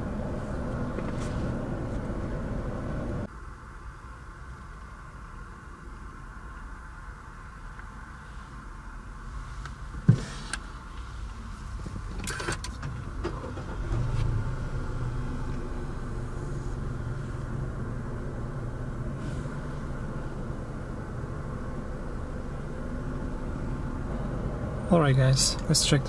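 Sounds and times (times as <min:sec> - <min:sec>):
car engine starting and idling: 0:00.0 - 0:03.3, 0:09.3 - 0:26.0.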